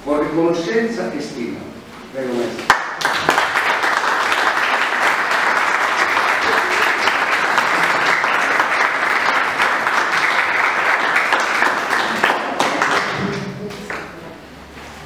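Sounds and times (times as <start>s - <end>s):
audience applauding: 2.7s - 14.1s.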